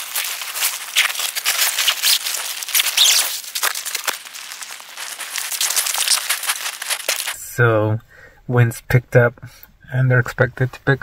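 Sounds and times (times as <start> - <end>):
rapid crackling flutter: 0.0 - 7.4.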